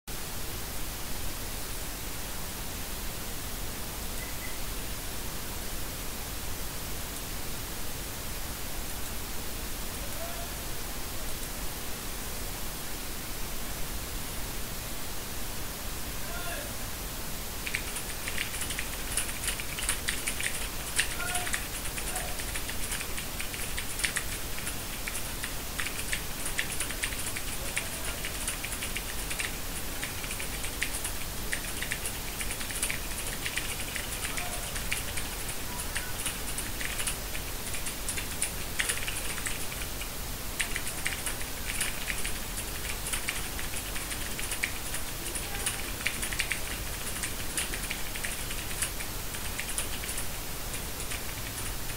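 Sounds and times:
steady hiss: 0.1 - 51.9
mechanical keyboard typing: 17.6 - 51.9.

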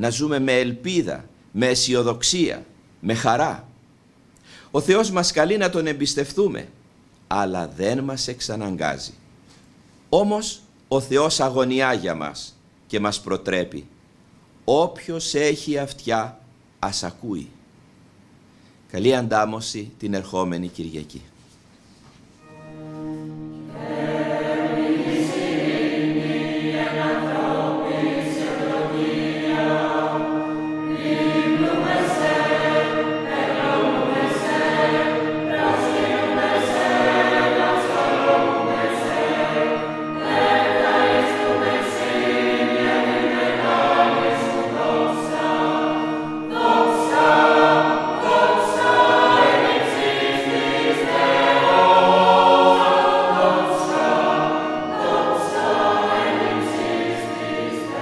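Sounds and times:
church choir singing a hymn: 22.4 - 58.0.

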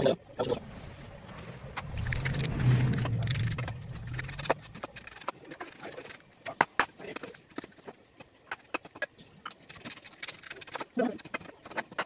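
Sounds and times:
low engine hum: 0.4 - 5.2.

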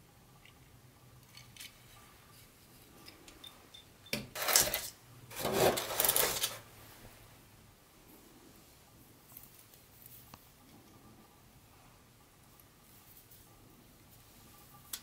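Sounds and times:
rubbing and scraping: 4.4 - 6.6.

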